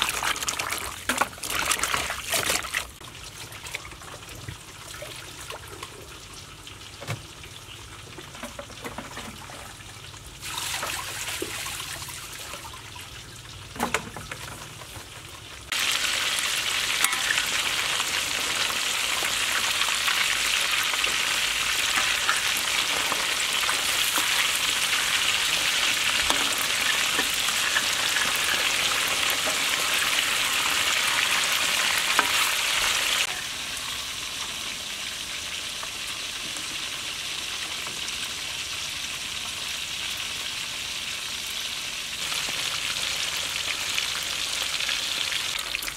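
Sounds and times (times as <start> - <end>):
water and handling sounds: 0.0 - 6.1
fish deep-frying in oil: 0.0 - 45.9.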